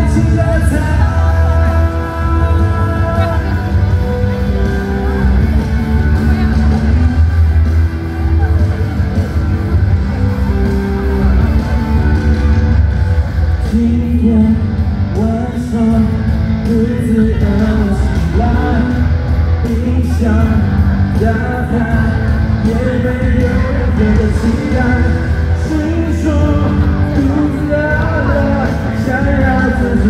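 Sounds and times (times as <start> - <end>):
man singing: 0.0 - 7.0, 13.4 - 30.0
live pop-rock band playing: 0.0 - 30.0.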